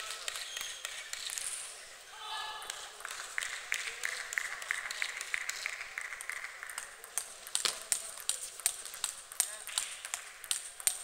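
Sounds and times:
table tennis balls bouncing: 5.5 - 11.0.

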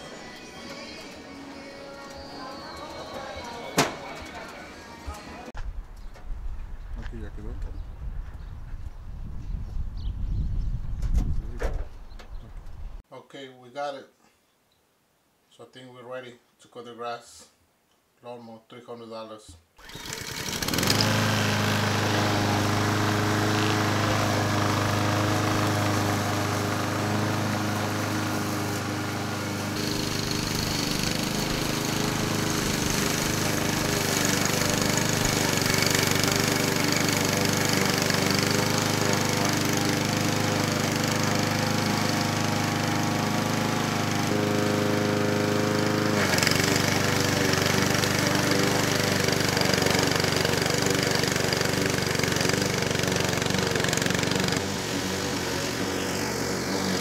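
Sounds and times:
lawn mower engine running: 0.0 - 5.6, 19.8 - 57.0.

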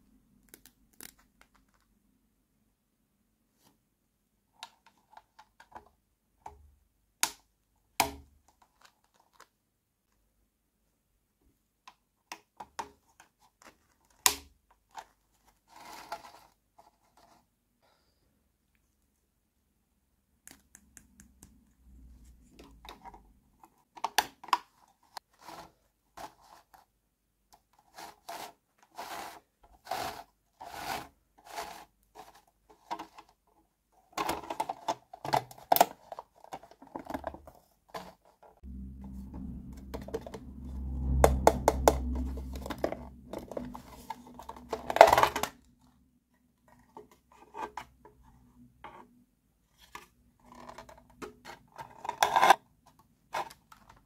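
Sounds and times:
plastic rubbing and scraping: 14.8 - 17.5, 22.0 - 26.9, 27.6 - 33.4, 34.0 - 49.1, 49.7 - 54.0.

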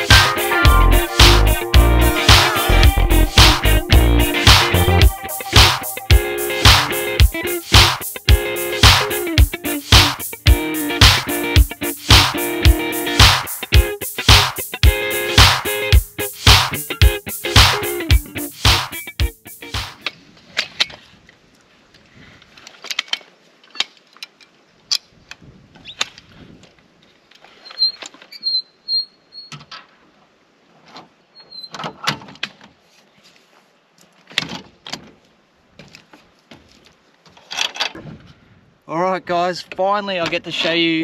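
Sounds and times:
short squeak: 27.5 - 29.7, 31.3 - 32.0.

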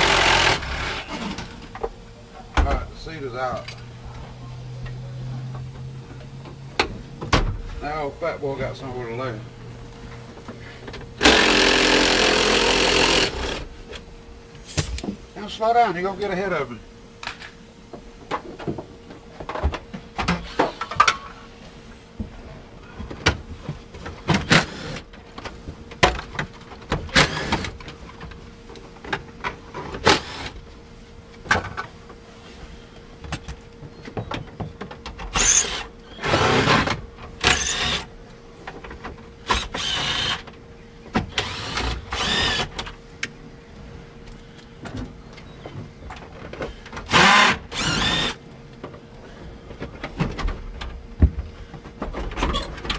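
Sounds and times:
cordless drill bursts: 0.0 - 1.2, 11.2 - 13.6, 27.2 - 27.7, 35.4 - 38.1, 39.5 - 40.4, 41.3 - 42.7, 47.1 - 48.4.

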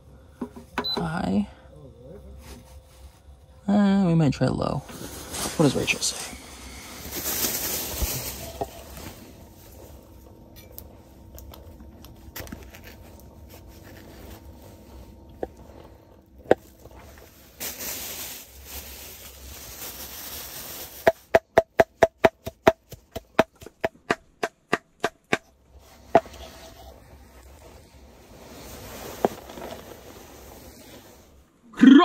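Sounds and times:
plastic bag rustling: 4.8 - 10.2, 11.2 - 21.5, 25.7 - 31.5
knife chopping on wooden board: 21.4 - 25.5.

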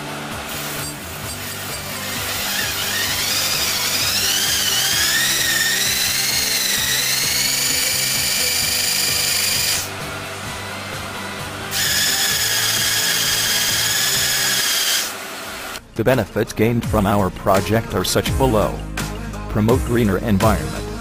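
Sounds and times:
electric motor whine: 0.0 - 15.8.

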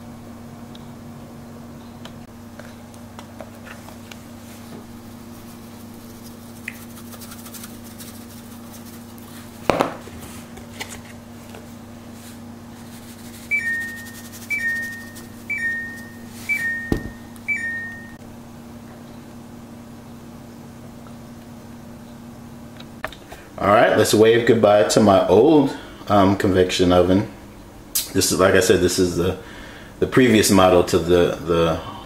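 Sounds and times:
steady low hum: 0.0 - 32.0
two-note appliance beeps: 13.5 - 18.2.

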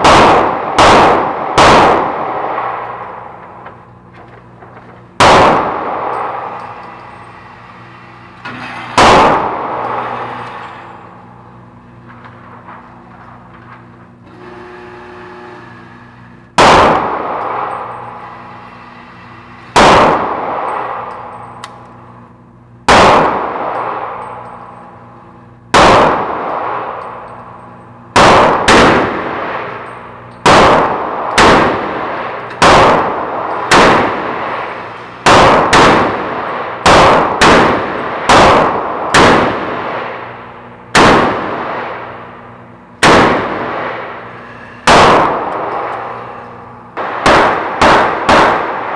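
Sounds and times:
gunshots with echoing ring-out: 0.0 - 4.1, 5.1 - 7.0, 9.0 - 13.5, 16.6 - 18.3, 19.7 - 22.2, 22.9 - 48.9.

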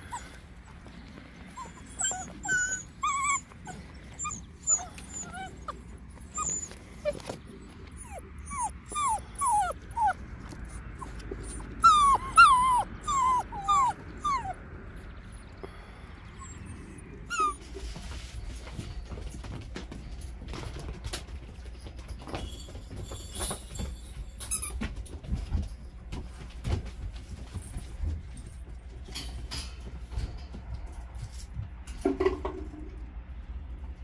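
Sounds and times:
puppies whimpering and yipping: 0.0 - 19.5.

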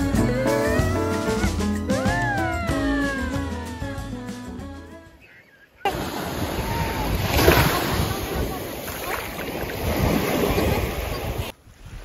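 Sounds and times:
small waves washing on sand: 5.9 - 12.0.

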